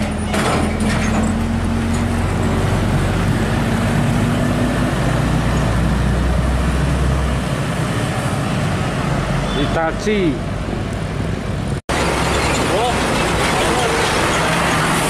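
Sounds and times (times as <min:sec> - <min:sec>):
passing traffic: 0:00.0 - 0:15.0.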